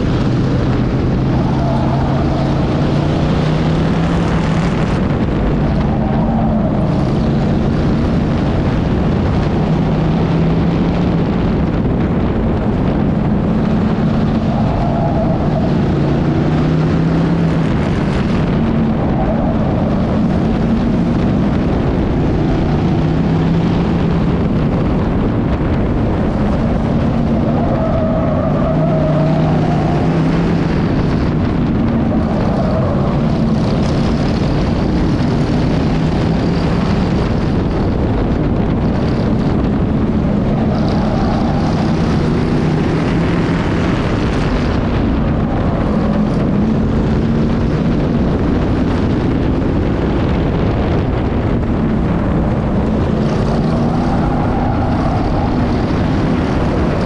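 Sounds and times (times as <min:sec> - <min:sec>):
race car engine running hard: 0:00.0 - 0:57.0
wind and road noise: 0:00.0 - 0:57.0.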